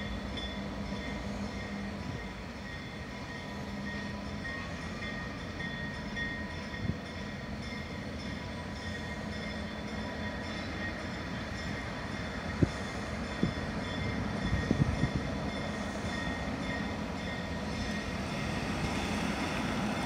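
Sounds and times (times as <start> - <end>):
diesel locomotives rumbling: 0.0 - 20.0.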